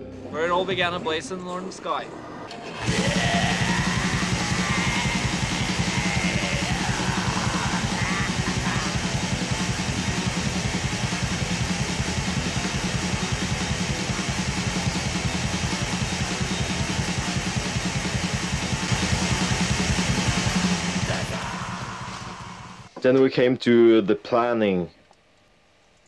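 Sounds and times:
distorted electric guitar: 0:02.6 - 0:23.0
fast dense drumming: 0:02.8 - 0:22.9.

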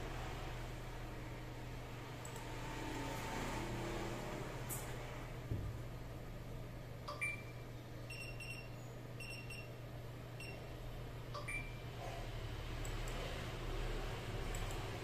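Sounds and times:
multimeter beeps: 0:07.1 - 0:09.7, 0:10.4 - 0:10.7, 0:11.3 - 0:11.8.

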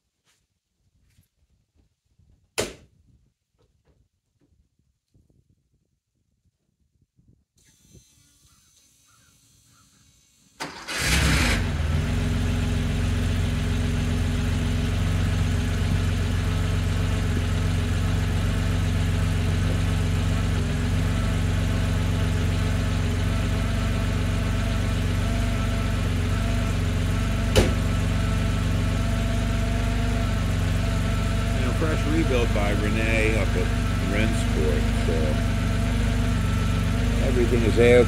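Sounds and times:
sharp knock: 0:02.6 - 0:02.8
car engine starting and idling: 0:09.6 - 0:38.0
engine cranking: 0:10.6 - 0:11.8.

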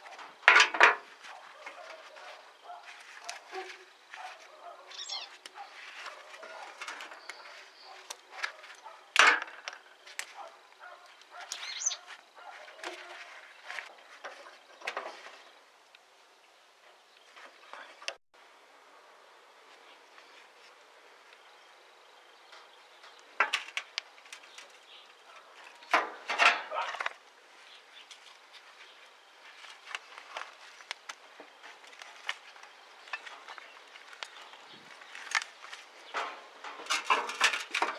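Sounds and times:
small metal clicks and knocks: 0:00.2 - 0:01.1, 0:22.5 - 0:27.2, 0:35.2 - 0:37.9
brief high squeak: 0:04.9 - 0:05.3.

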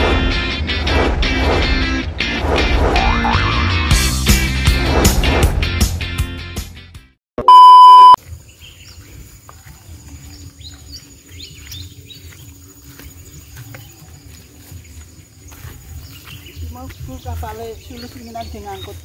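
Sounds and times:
music: 0:00.0 - 0:07.2
electronic beep: 0:07.4 - 0:08.2
birds chirping: 0:07.5 - 0:19.0.

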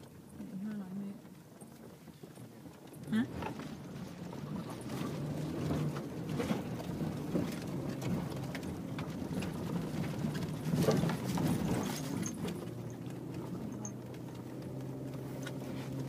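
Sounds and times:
car engine hum: 0:00.0 - 0:16.0
car rattling over bumps: 0:00.0 - 0:16.0.

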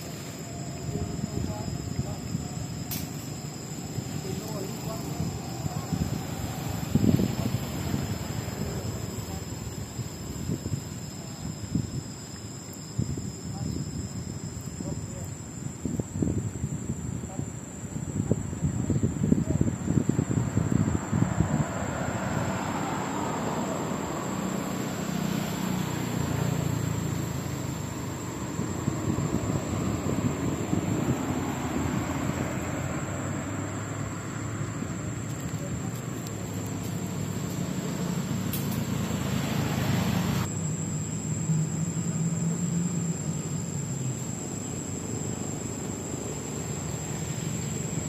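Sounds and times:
rushing background noise: 0:00.0 - 0:48.0
low engine hum: 0:19.4 - 0:48.0.

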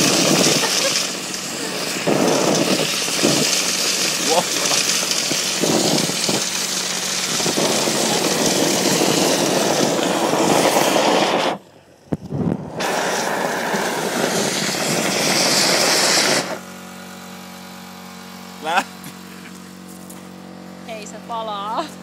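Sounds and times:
compressed air rushing: 0:00.0 - 0:16.9
fanned flames: 0:00.0 - 0:17.2.

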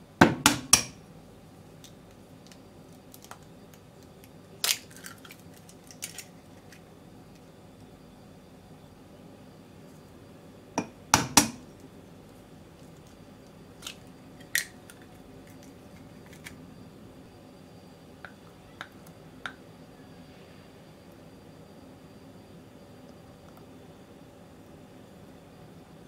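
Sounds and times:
eggshell cracking and peeling: 0:01.8 - 0:07.4.

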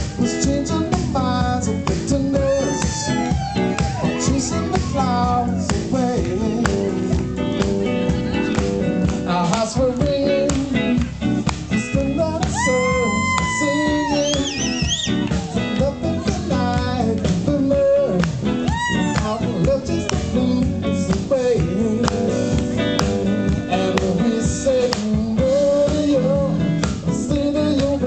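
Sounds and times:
person singing over guitar: 0:00.0 - 0:28.0.

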